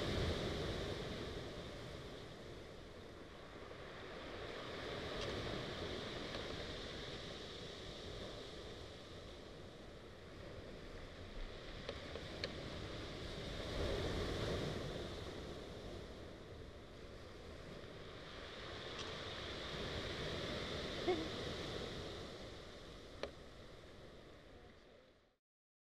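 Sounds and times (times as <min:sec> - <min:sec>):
waves washing over pebbles: 0:10.3 - 0:23.2.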